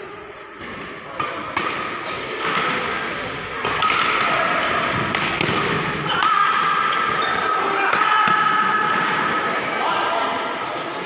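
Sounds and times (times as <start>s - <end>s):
rackets striking shuttlecock: 0.7s - 7.2s.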